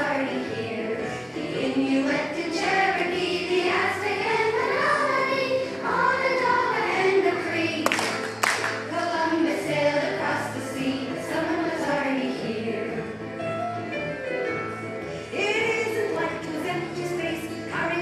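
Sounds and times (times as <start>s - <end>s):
children singing: 0.0s - 8.2s, 8.8s - 13.1s.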